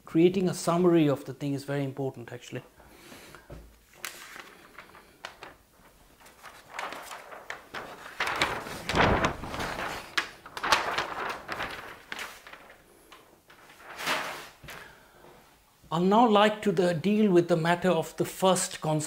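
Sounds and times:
paper sheets rustling and crackling: 3.7s - 15.0s
heavy thump of pages: 6.8s - 12.5s, 13.9s - 14.8s.

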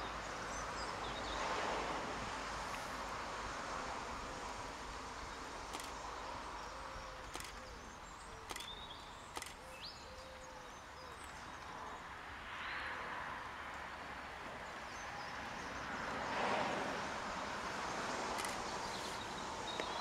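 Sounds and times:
outdoor background noise: 0.0s - 20.0s
sharp clicks: 5.7s - 6.1s, 7.2s - 7.7s, 8.4s - 9.9s, 18.3s - 18.7s.

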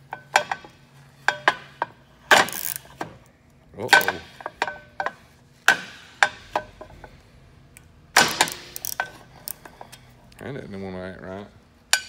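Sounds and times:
ratcheting wrench clicking on nut: 2.4s - 2.9s, 8.4s - 9.6s.

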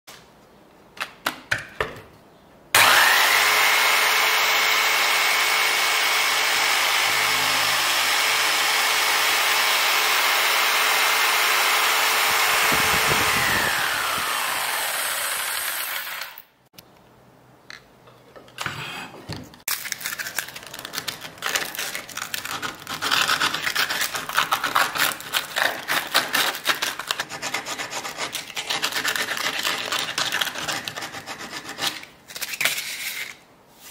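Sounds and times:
jigsaw sawing wood: 2.8s - 16.5s
sandpaper scratching: 21.4s - 33.9s.

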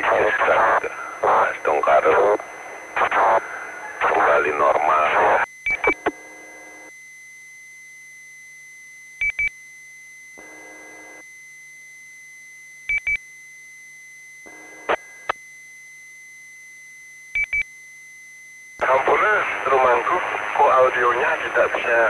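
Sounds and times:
short electronic beeps: 5.7s - 6.2s.

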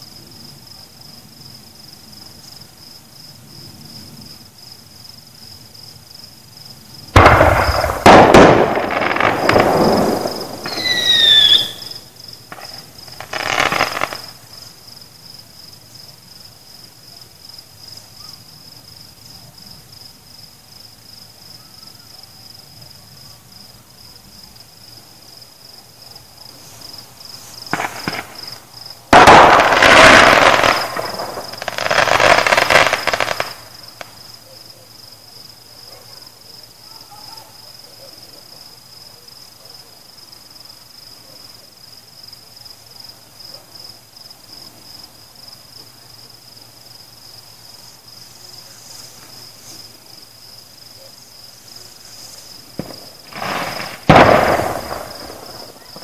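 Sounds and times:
crickets chirping: 0.0s - 56.0s
fireworks bangs and crackles: 7.0s - 14.8s, 26.5s - 34.4s, 51.6s - 56.0s
falling firework whistle: 7.2s - 14.3s.

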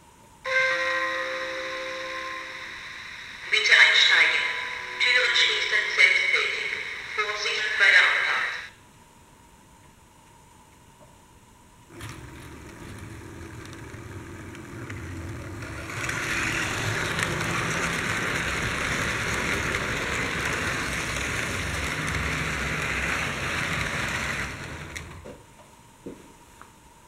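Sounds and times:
model train passing on track: 0.5s - 8.7s, 11.9s - 25.4s.

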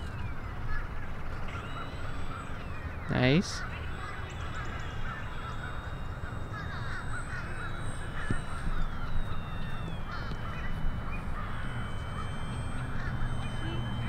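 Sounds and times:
birds calling and chattering: 0.0s - 14.0s
distant model plane motor whine: 0.0s - 14.0s.

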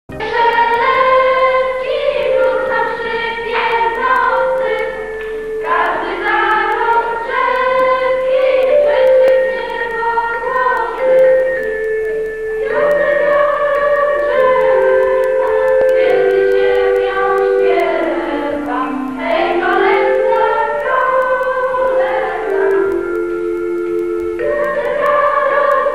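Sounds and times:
choir singing slow melody: 0.1s - 25.9s.

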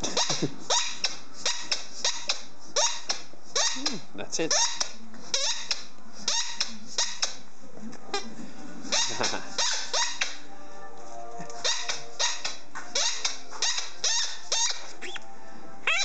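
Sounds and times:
squeaky toy squeaking: 0.0s - 7.4s, 8.9s - 10.4s, 11.6s - 15.2s.

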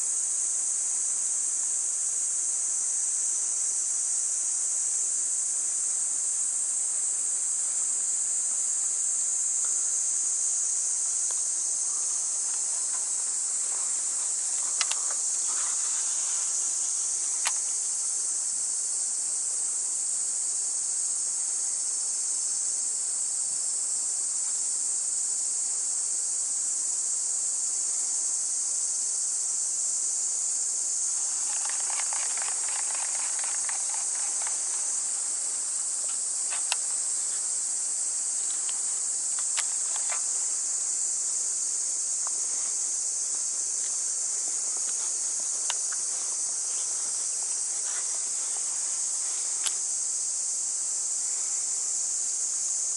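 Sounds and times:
cicadas chorus: 0.0s - 52.9s
low pulsing insect buzz: 0.0s - 52.9s
sharp clicks: 31.4s - 34.6s.

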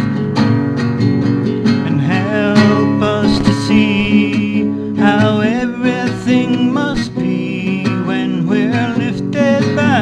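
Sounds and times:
strummed acoustic guitar: 0.0s - 10.0s
wavering high note: 2.7s - 5.8s.

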